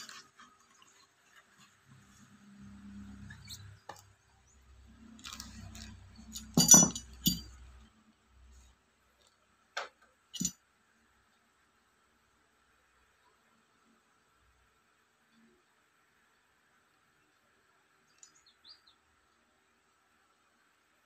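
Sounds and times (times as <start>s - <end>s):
hard parts clinking: 0.0s - 0.9s, 5.1s - 7.9s, 10.3s - 10.6s
rubbing and rustling: 0.0s - 3.8s.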